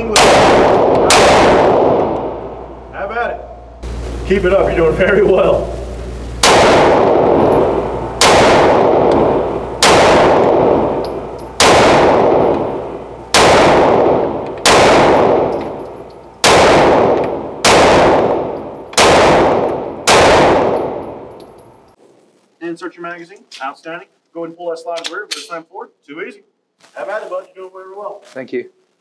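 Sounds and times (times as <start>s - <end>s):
pistol shots echoing indoors: 0.0s - 2.8s, 6.4s - 21.9s.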